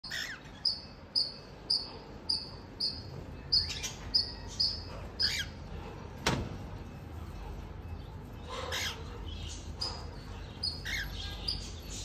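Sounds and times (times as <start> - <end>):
cockatiel chirping: 0.0 - 5.5, 8.6 - 12.0
harsh bird calls: 0.0 - 5.7, 8.4 - 12.0.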